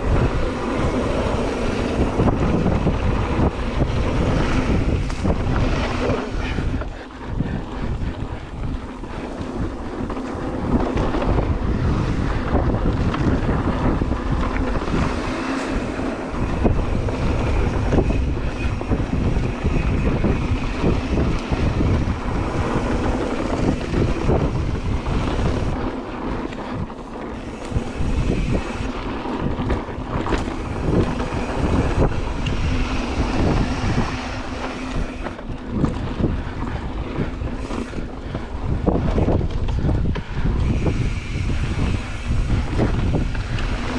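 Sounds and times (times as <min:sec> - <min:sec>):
bike knocking and rattling: 0:00.0 - 0:43.9
tyres rumbling on dirt: 0:00.0 - 0:43.9
wind buffeting microphone: 0:00.0 - 0:43.9.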